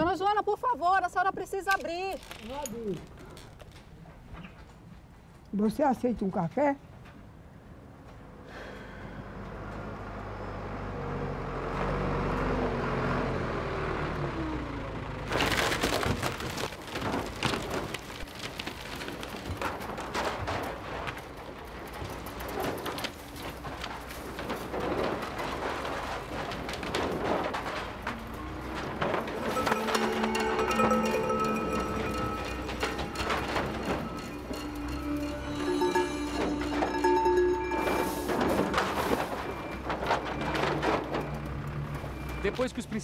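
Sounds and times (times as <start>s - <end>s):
wood clattering and cracking: 1.6s - 4.8s, 15.3s - 42.7s
wooden shack crashing: 15.3s - 42.2s
backhoe engine running: 21.5s - 43.0s.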